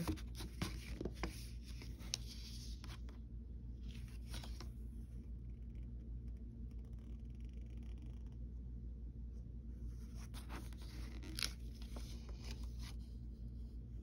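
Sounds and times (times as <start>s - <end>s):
paper rustling and crinkling: 0.0s - 3.1s, 3.8s - 4.8s, 10.1s - 13.1s
steady low hum: 0.0s - 14.0s.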